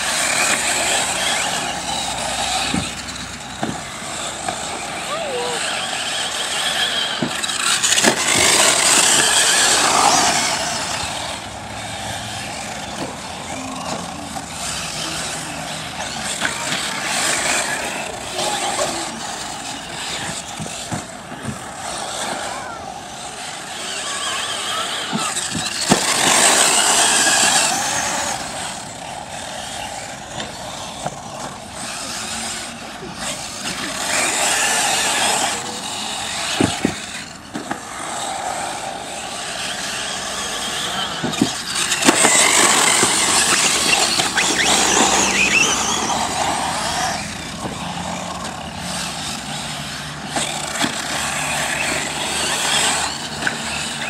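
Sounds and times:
rc cars motor whine: 0.0s - 54.0s
rc cars knocking on landing: 25.0s - 28.8s, 36.2s - 37.9s.

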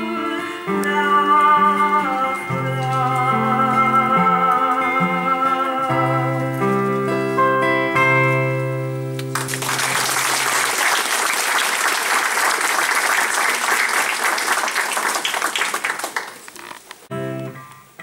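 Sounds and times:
audience applauding: 9.2s - 17.0s.

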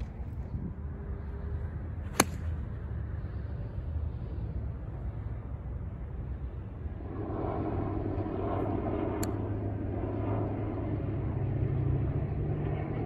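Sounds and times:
low engine drone: 0.0s - 13.0s
golf club striking ball: 2.1s - 2.6s.

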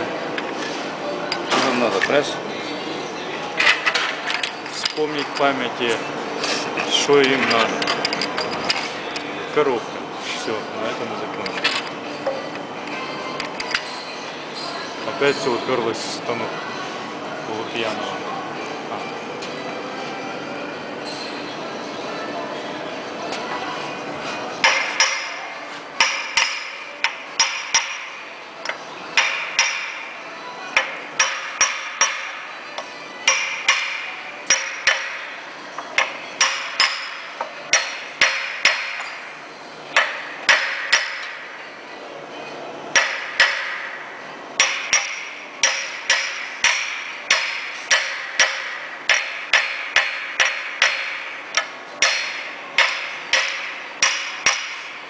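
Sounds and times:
hammer striking steel: 24.6s - 25.4s, 26.0s - 28.2s, 29.2s - 30.1s, 30.8s - 32.4s, 33.2s - 35.3s, 36.0s - 39.2s, 39.9s - 41.5s, 42.9s - 44.0s, 44.6s - 55.0s.

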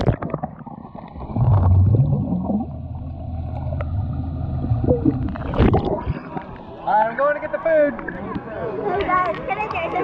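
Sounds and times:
underwater bubbles rumbling: 0.0s - 6.7s
muffled rising hum: 1.4s - 6.2s.

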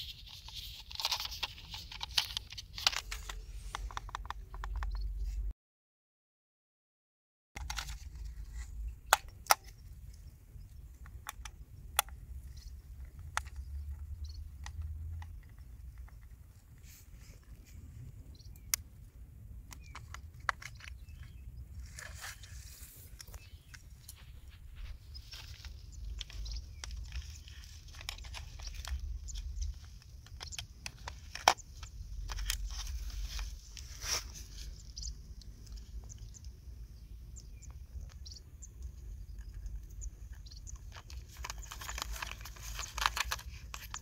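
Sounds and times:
small plastic clicks: 0.0s - 5.2s, 7.6s - 16.4s, 18.4s - 21.4s, 25.2s - 33.9s, 37.4s - 44.0s
rustling of handling: 0.0s - 5.4s, 7.6s - 18.8s, 19.6s - 36.5s, 39.2s - 44.0s.

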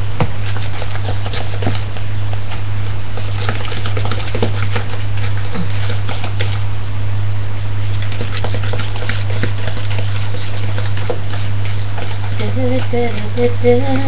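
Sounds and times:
steady low hum: 0.0s - 14.0s
spoon clicking and scraping bowl: 3.2s - 6.6s, 8.0s - 12.9s.

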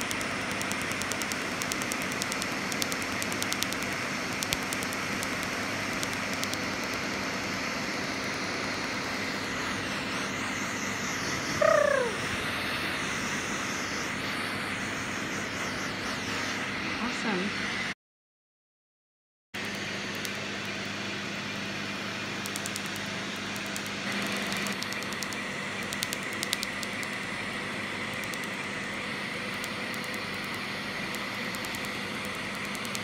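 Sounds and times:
laser clicking: 0.0s - 7.6s, 19.6s - 20.9s, 22.4s - 27.3s, 28.1s - 28.7s, 29.5s - 33.0s.

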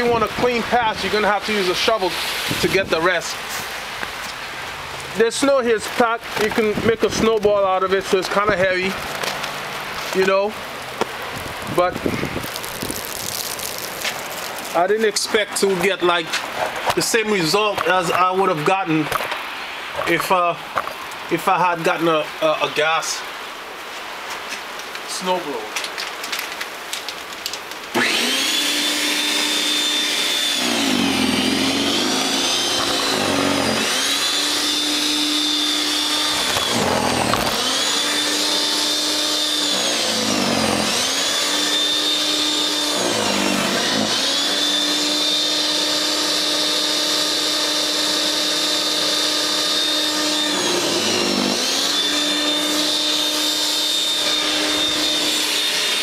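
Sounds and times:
snow thrower motor whining: 27.9s - 56.0s.

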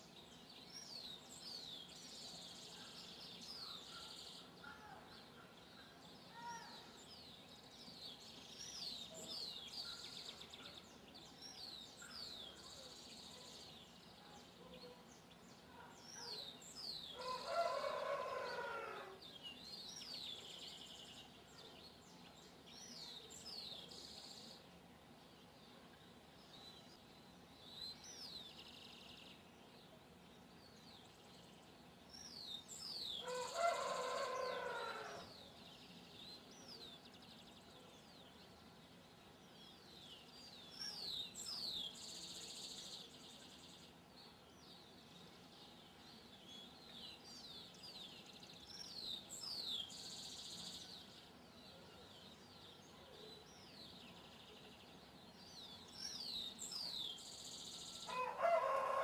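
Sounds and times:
rooster crowing: 17.2s - 19.2s, 33.2s - 35.3s, 58.1s - 59.0s.

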